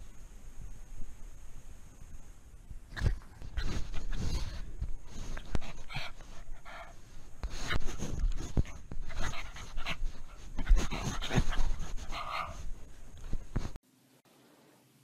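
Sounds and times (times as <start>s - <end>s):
dog panting: 3.3s - 13.6s.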